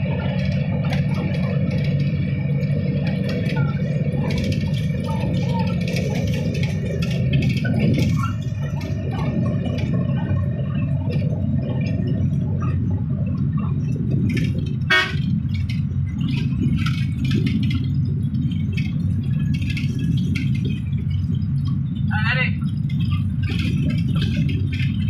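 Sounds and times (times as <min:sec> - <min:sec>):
light rattles: 0:00.0 - 0:25.0
vehicle engine and road rumble: 0:00.0 - 0:25.0
car horn honk: 0:14.9 - 0:15.3.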